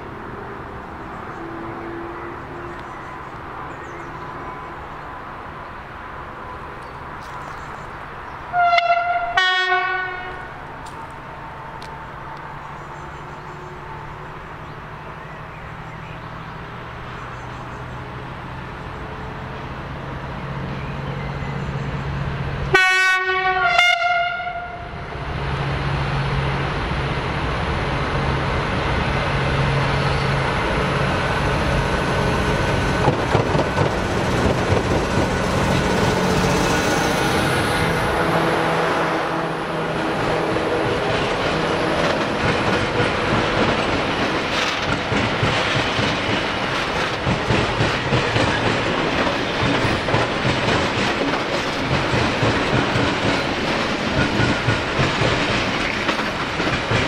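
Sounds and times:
locomotive engine hum: 0.0 - 57.0
rumble of train wheels: 0.0 - 57.0
two-tone locomotive horn: 8.5 - 10.6, 22.7 - 25.1, 36.1 - 42.2.

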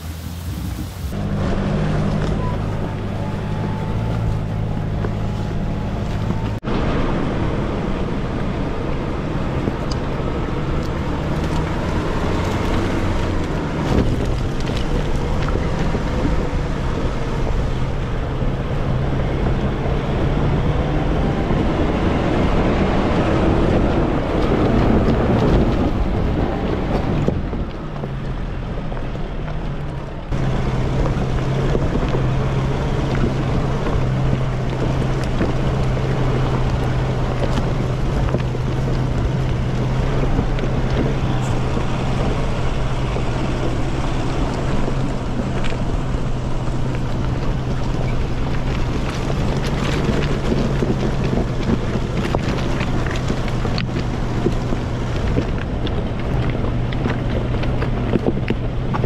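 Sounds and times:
car engine running: 0.0 - 59.0
wind on microphone: 0.0 - 59.0
tyres on stones: 10.7 - 18.0, 24.2 - 59.0.

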